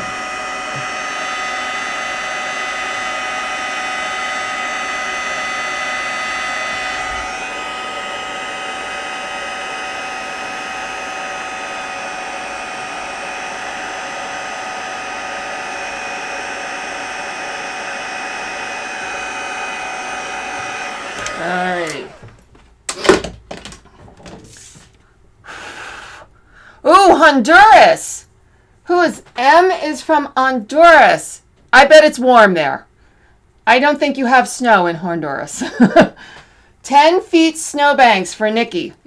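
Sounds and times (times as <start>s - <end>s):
heat gun blowing: 0.0s - 23.2s, 25.5s - 26.3s.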